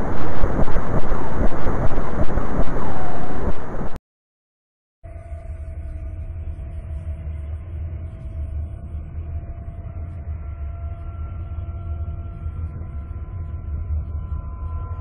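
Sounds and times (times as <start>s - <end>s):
deep drone: 0.0s - 4.0s.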